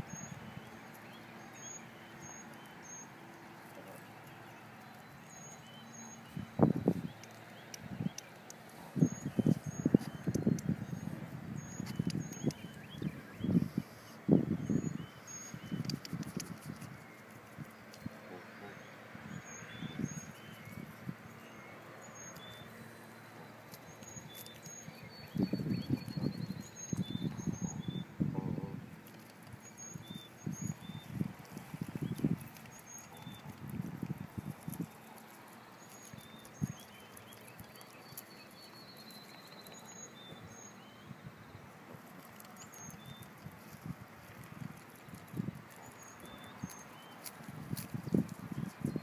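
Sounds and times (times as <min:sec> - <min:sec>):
small birds chirping: 0:00.0 - 0:49.0
goose pecking at crumbs: 0:15.4 - 0:18.2, 0:22.2 - 0:27.2, 0:28.9 - 0:40.4, 0:41.8 - 0:49.0.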